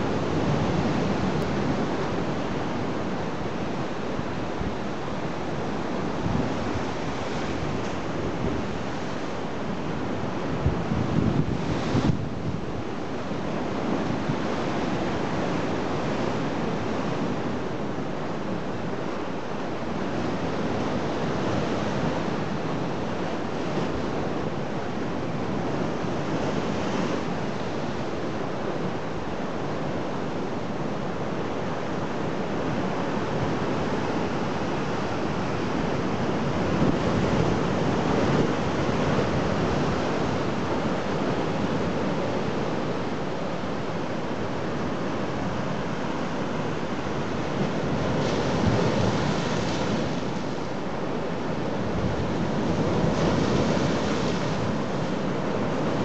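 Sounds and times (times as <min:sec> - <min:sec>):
wind on microphone: 0:00.0 - 0:19.0, 0:19.7 - 0:56.0
waves breaking on rocks: 0:47.0 - 0:56.0.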